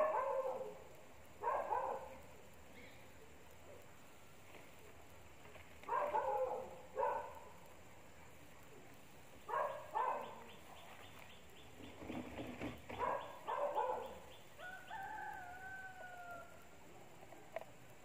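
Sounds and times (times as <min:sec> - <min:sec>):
rooster crowing: 0:14.6 - 0:16.8.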